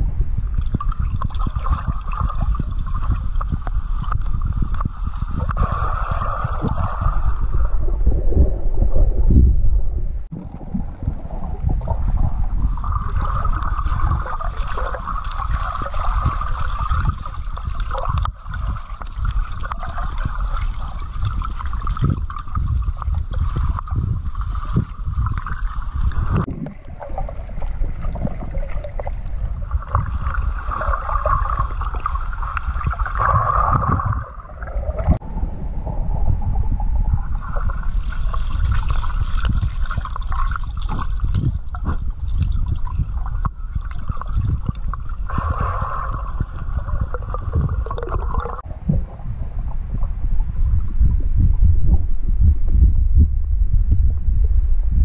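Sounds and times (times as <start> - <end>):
muffled underwater rumble: 0.0 - 55.0
hazy rushing sound: 3.9 - 13.6
water sloshing: 10.2 - 35.2, 37.1 - 50.7.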